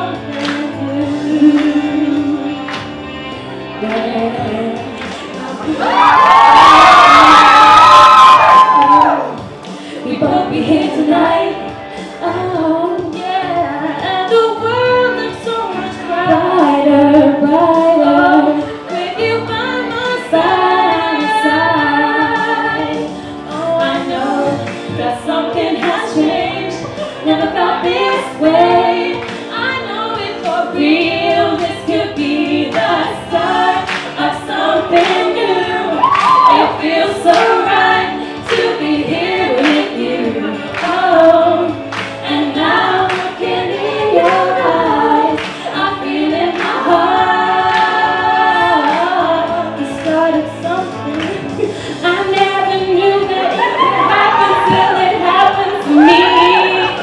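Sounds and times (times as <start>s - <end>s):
women singing pop duet: 0.0s - 3.0s, 3.7s - 57.0s
backing track with beat: 30.2s - 57.0s.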